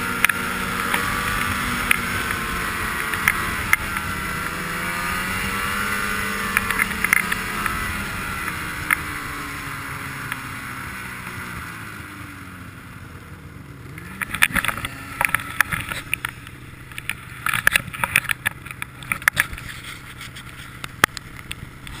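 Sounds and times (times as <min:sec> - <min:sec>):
snowmobile engine running: 0:00.0 - 0:22.0
sharp knocks and rattles: 0:14.1 - 0:22.0.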